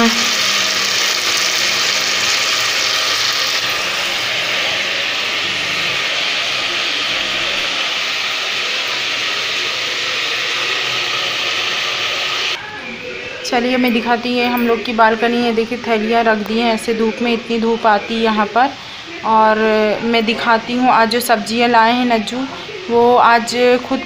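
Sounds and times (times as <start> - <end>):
chicken sizzling in oil: 0.0 - 12.6.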